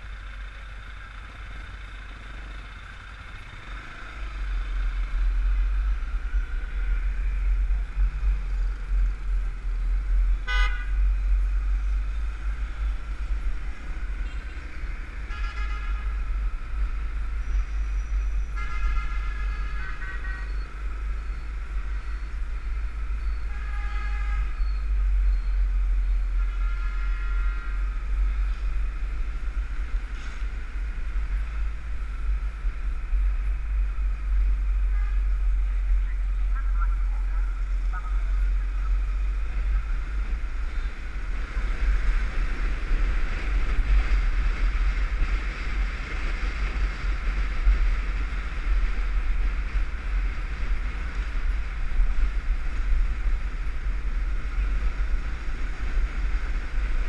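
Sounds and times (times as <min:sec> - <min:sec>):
motorcycle road noise: 0:00.0 - 0:57.0
wind rumble: 0:02.8 - 0:57.0
vehicle horns honking: 0:10.4 - 0:11.0, 0:15.2 - 0:16.3, 0:18.5 - 0:20.8, 0:23.4 - 0:24.8, 0:26.4 - 0:28.0.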